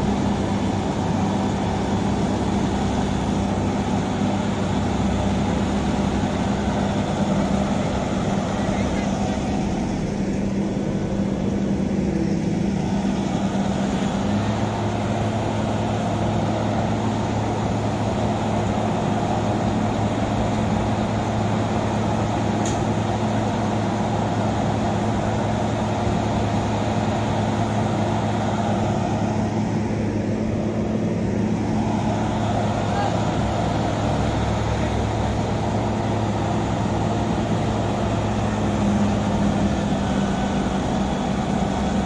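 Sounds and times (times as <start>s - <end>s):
diesel engine running: 0.0s - 42.0s
low hum: 0.0s - 42.0s.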